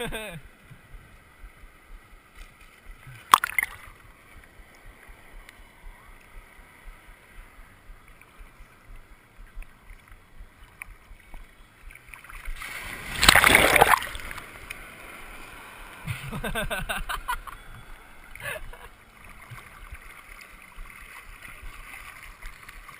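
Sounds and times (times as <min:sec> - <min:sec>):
small waves lapping and sloshing: 0:00.5 - 0:22.9
water slap: 0:12.6 - 0:14.2.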